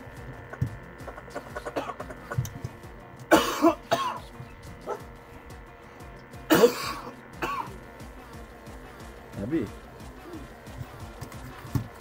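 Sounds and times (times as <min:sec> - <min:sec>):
faint music: 0:00.0 - 0:12.0
person coughing: 0:01.5 - 0:02.2, 0:03.3 - 0:04.3, 0:06.5 - 0:07.8.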